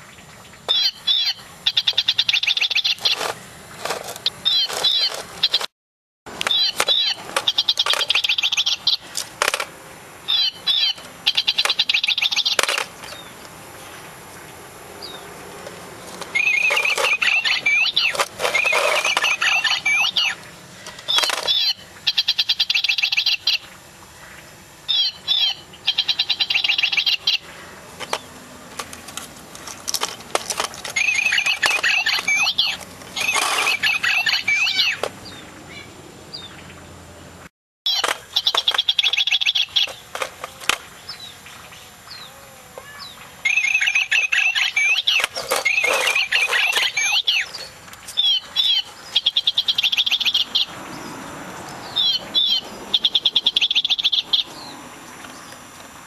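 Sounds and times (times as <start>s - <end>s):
toy bird chirping and trilling: 0.7s - 5.7s, 6.4s - 9.1s, 10.3s - 13.3s, 16.2s - 23.6s, 24.9s - 27.4s, 30.8s - 35.1s, 37.9s - 40.0s, 43.5s - 50.7s, 52.0s - 54.5s.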